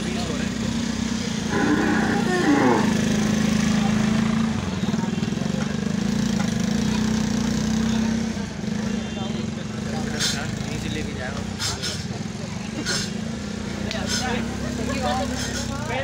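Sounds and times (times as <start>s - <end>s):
engine drone with fast pulse: 0.0s - 4.6s.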